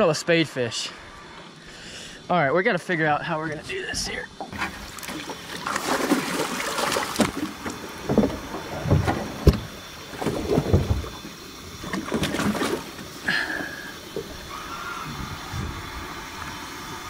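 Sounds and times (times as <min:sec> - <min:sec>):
water slapping boat hull: 0:03.5 - 0:16.7
fish thrashing and splashing: 0:04.5 - 0:14.8.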